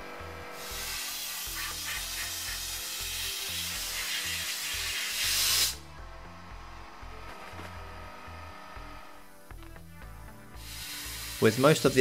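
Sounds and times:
background music: 0.0 - 12.0
abrasive blaster hissing: 0.6 - 5.8, 10.6 - 11.9.

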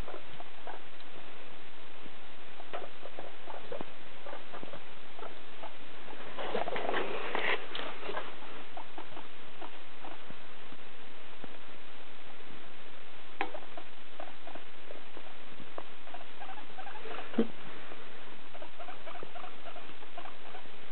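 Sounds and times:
steady hiss: 0.0 - 18.8
guinea pigs moving on hay: 2.6 - 10.4, 13.5 - 20.9.

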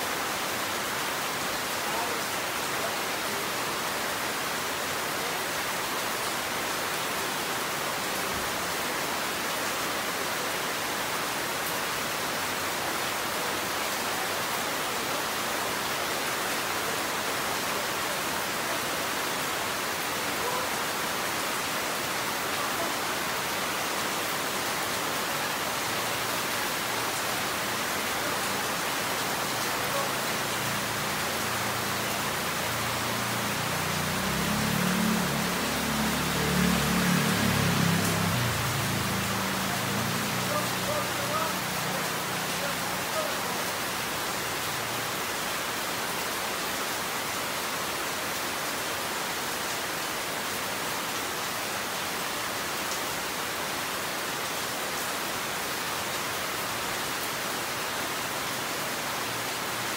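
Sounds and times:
steady rain falling: 0.0 - 59.9.

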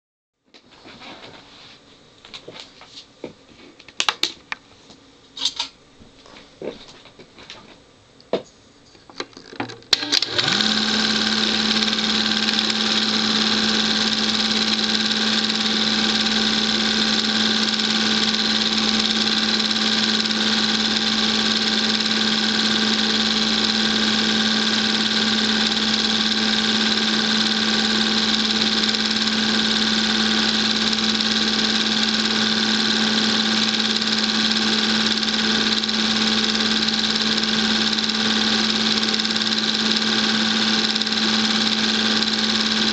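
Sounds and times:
film projector clicks: 9.9 - 42.9
film projector motor whirring: 9.9 - 42.9.

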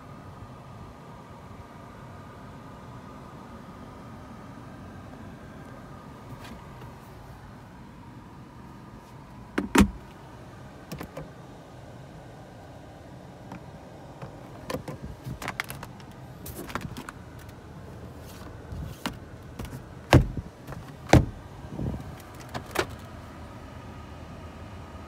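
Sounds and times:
plastic clicks of car fittings: 13.5 - 17.6.

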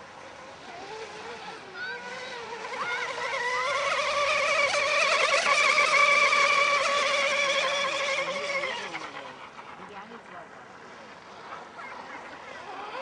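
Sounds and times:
model speedboat motor whine: 0.0 - 13.0.

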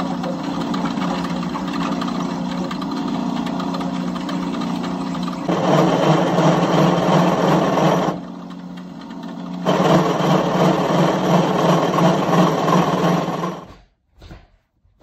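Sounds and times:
drill press motor hum: 0.0 - 13.7
drill bit cutting metal: 5.5 - 8.2.

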